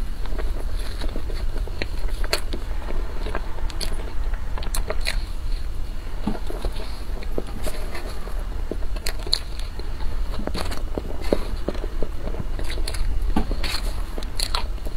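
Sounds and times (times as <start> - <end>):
steady low hum: 0.0 - 14.9
wet chewing clicks and smacks: 0.0 - 14.9.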